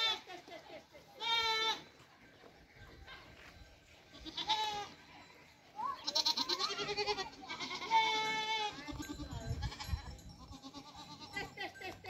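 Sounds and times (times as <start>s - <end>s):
goats bleating: 1.2s - 1.9s, 4.1s - 5.0s, 6.0s - 11.7s.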